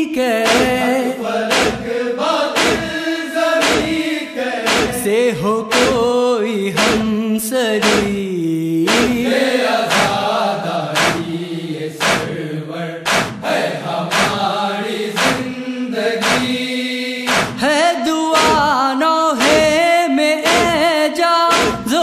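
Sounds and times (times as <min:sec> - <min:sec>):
chest-beating beat: 0:00.4 - 0:01.9, 0:02.6 - 0:03.0, 0:03.6 - 0:04.1, 0:04.7 - 0:05.1, 0:05.7 - 0:06.1, 0:06.8 - 0:07.2, 0:07.8 - 0:08.2, 0:08.9 - 0:09.3, 0:09.9 - 0:10.2, 0:11.0 - 0:11.2, 0:12.0 - 0:12.3, 0:13.1 - 0:13.5, 0:14.1 - 0:14.4, 0:15.2 - 0:15.4, 0:16.2 - 0:16.5, 0:17.3 - 0:17.6, 0:18.4 - 0:18.8, 0:19.4 - 0:19.9, 0:20.5 - 0:20.9, 0:21.5 - 0:22.0
men chanting held tones: 0:00.4 - 0:06.2, 0:06.8 - 0:07.2, 0:07.8 - 0:08.2, 0:08.9 - 0:17.6, 0:18.4 - 0:18.8, 0:19.4 - 0:19.8, 0:21.5 - 0:22.0.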